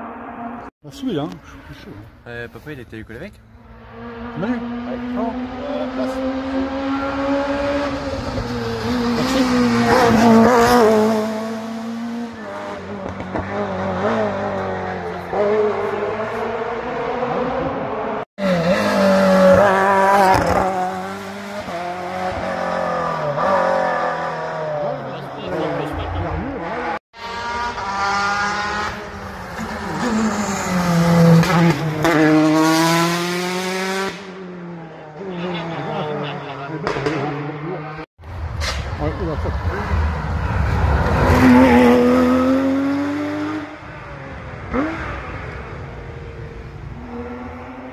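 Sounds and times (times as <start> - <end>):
rally car engine revving past: 3.7 - 38.1, 39.5 - 47.9.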